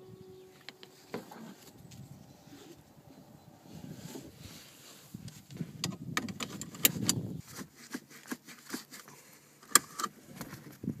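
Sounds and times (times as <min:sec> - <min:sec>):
seatbelt buckle clicking and rattling: 0:05.8 - 0:07.2, 0:09.6 - 0:10.7.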